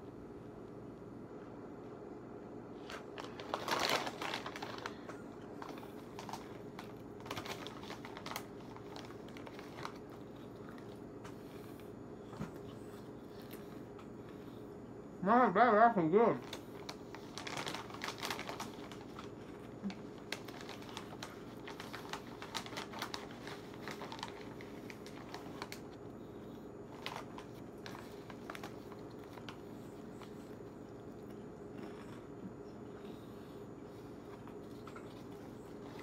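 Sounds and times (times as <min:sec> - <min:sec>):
steady low hum: 0:00.0 - 0:36.0
chip bag rustling: 0:02.8 - 0:11.0, 0:16.3 - 0:26.0, 0:26.9 - 0:32.1
chips crunching: 0:02.8 - 0:11.0, 0:16.4 - 0:25.9.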